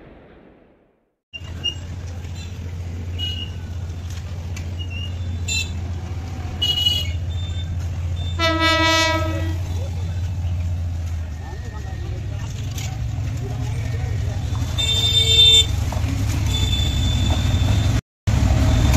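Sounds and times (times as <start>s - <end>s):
train horn: 8.4s - 9.8s.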